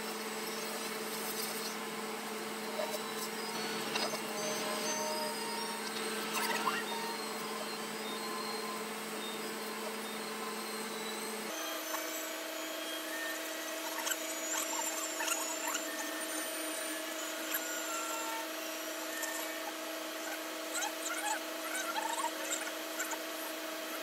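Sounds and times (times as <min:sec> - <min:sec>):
steady mechanical hum: 0:00.0 - 0:24.0
faint small clicks and chirps: 0:00.1 - 0:01.8.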